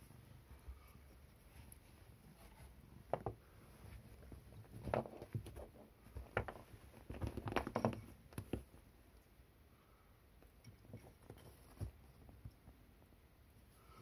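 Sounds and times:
cats pawing on sofa: 0:02.3 - 0:08.9.

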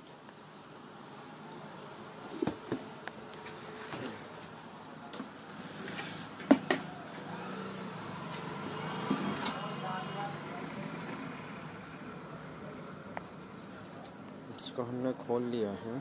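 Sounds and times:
faint background noise: 0:00.0 - 0:16.0.

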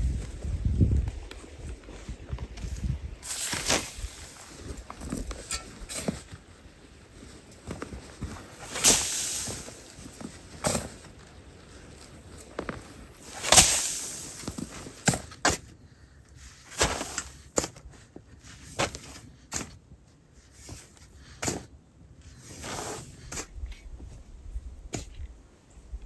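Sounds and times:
shovel scraping sandy soil: 0:02.6 - 0:24.1
sand being tossed: 0:03.1 - 0:06.3, 0:07.4 - 0:11.2, 0:11.8 - 0:15.6, 0:16.6 - 0:17.6, 0:22.4 - 0:23.5.

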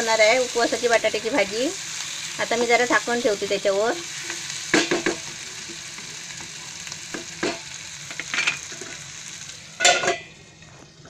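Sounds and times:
potatoes sizzling in a pan: 0:00.0 - 0:11.0
metal lid clanking on a pan: 0:09.8 - 0:10.3.

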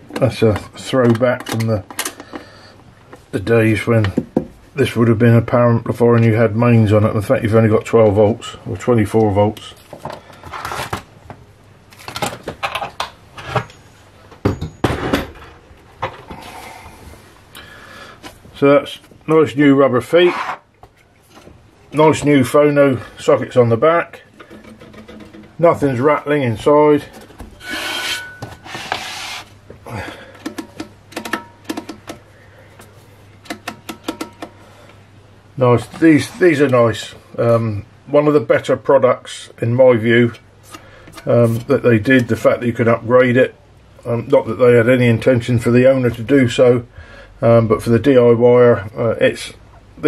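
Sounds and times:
rubbing sliding sounds: 0:20.1 - 0:20.7, 0:27.6 - 0:29.6.

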